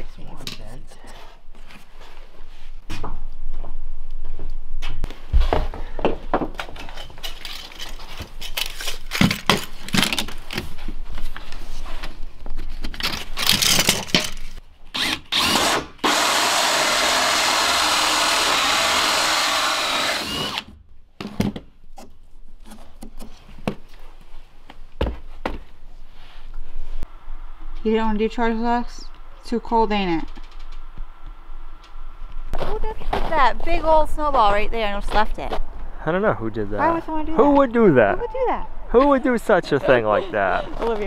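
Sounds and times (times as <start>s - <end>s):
cordless drill boring through wood: 15.0s - 20.7s.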